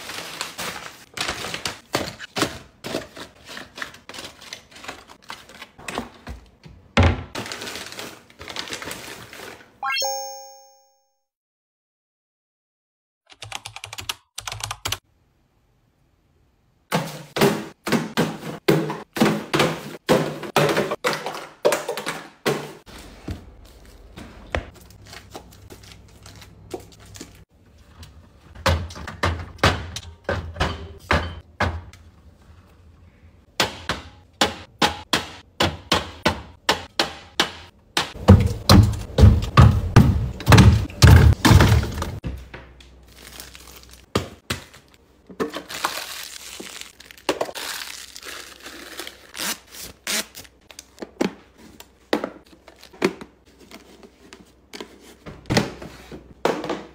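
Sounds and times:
short ringing tone: 9.8s - 11.2s.

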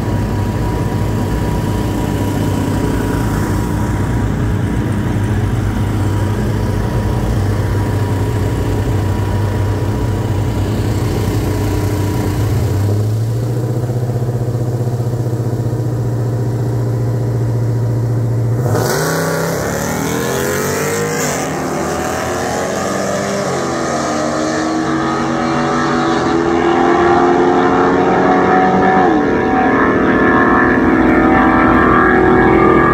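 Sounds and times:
engine idling: 0.0s - 18.9s
engine revving through gear changes: 18.5s - 32.9s.

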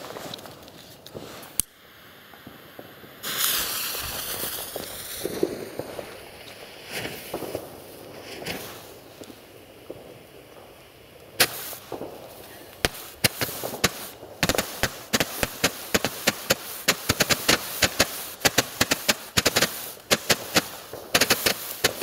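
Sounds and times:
fuse hissing: 1.3s - 5.7s, 11.4s - 22.0s
small pops: 11.2s - 22.0s.

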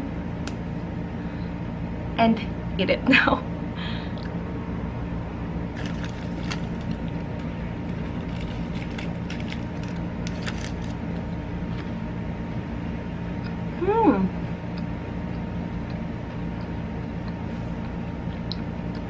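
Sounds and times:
low mechanical hum: 0.0s - 19.0s
chocolate wafer crunching: 5.8s - 11.9s.

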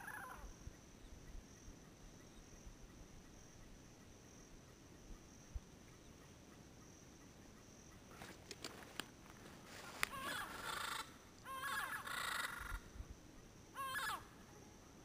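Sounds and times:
faint high-pitched insect trill: 0.0s - 15.0s
parrot warbling call: 10.1s - 12.8s, 13.8s - 14.3s.

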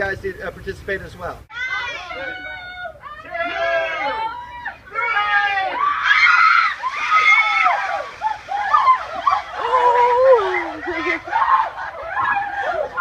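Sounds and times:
people shrieking and yelling: 1.5s - 13.0s
ice water splashing: 5.7s - 12.6s.

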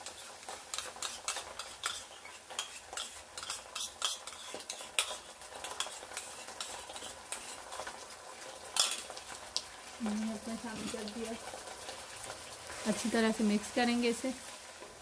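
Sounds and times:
spoon scraping and clicking: 0.0s - 7.9s, 8.8s - 9.2s
onions sizzling in hot oil: 0.0s - 15.0s.

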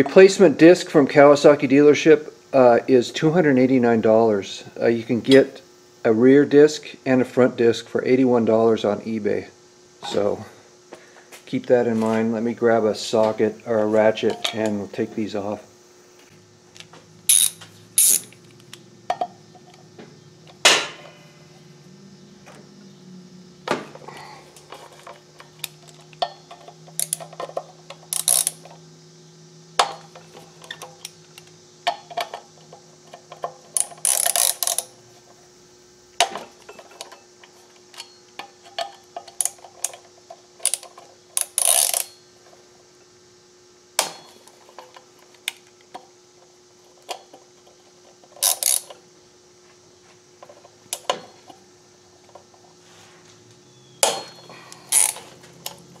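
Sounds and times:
ratchet pawl clicking: 17.3s - 18.4s, 26.9s - 28.7s, 33.8s - 34.9s, 40.6s - 42.1s, 48.4s - 48.9s, 54.9s - 55.8s
metal tools clinking: 54.0s - 55.8s.

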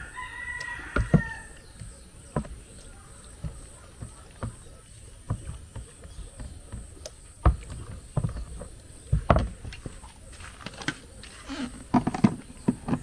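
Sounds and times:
dull knocks and thuds: 0.8s - 10.1s.

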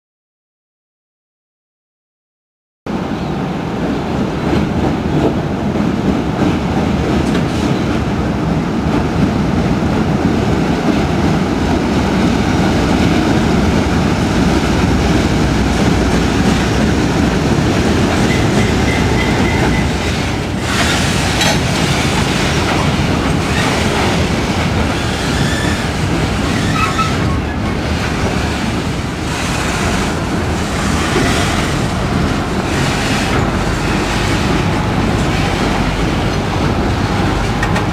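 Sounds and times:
diesel locomotive engine under load: 2.9s - 37.9s
train wheels clacking on rail joints: 14.4s - 37.9s
high wheel squeals: 25.2s - 27.6s.

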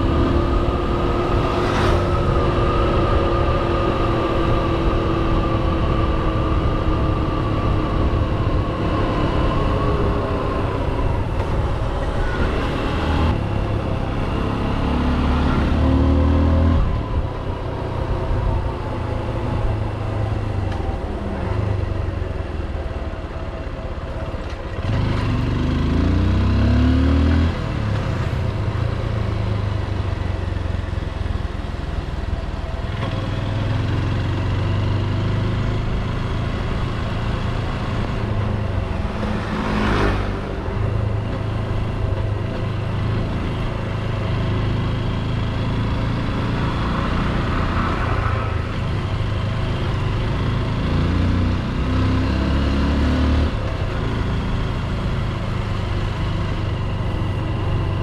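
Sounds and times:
motorcycle engine revving: 43.4s - 58.0s.

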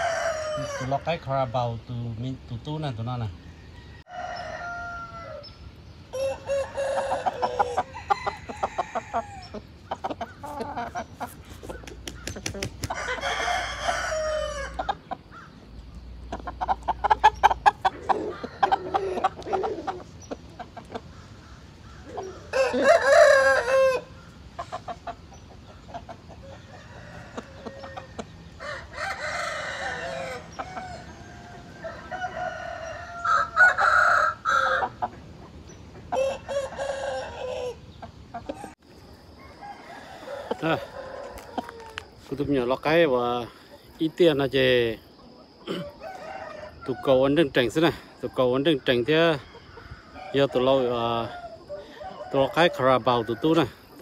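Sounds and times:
roosters crowing: 0.0s - 54.0s
rapid pulsed clucks: 9.6s - 13.0s.

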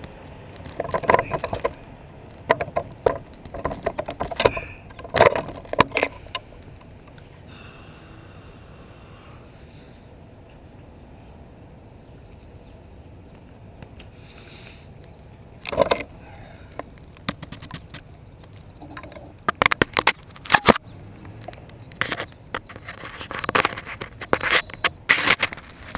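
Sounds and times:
clicks knocks and scrapes: 0.5s - 7.2s, 16.7s - 25.9s
faint steady rush: 4.4s - 19.4s
camera handling scrape: 21.9s - 25.9s.

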